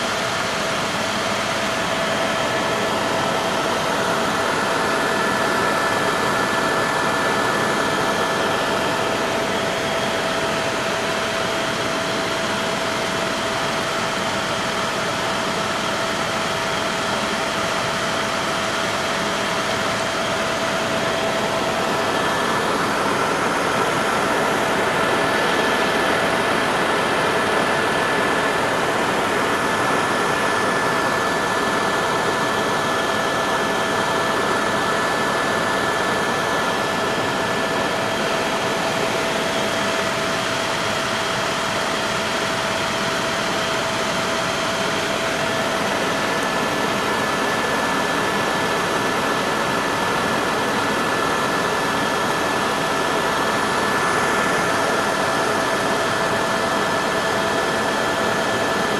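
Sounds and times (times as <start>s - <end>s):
helicopter engine and rotor noise: 0.0s - 58.9s.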